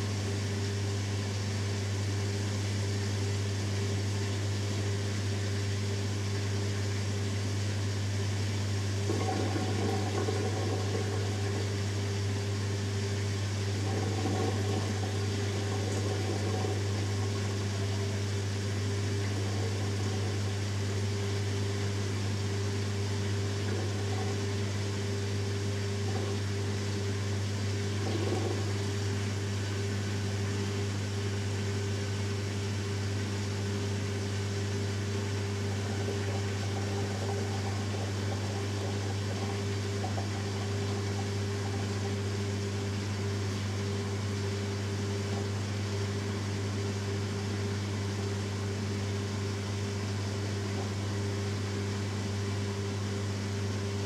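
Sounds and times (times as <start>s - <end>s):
drain pump humming: 0.0s - 54.0s
water gurgling: 3.8s - 32.2s, 33.0s - 54.0s.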